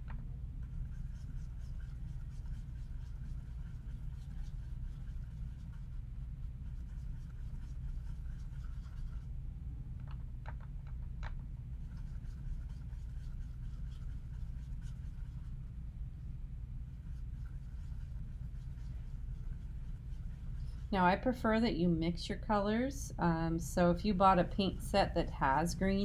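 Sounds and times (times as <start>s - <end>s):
steady low hum: 0.0s - 26.0s
paintbrush scratchy strokes: 0.6s - 9.3s, 11.7s - 15.8s, 16.8s - 21.0s, 23.8s - 26.0s.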